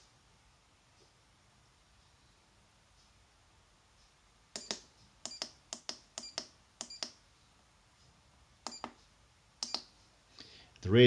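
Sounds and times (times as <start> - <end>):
keypad buttons clicking: 4.6 - 7.2, 8.7 - 9.0, 9.6 - 9.9.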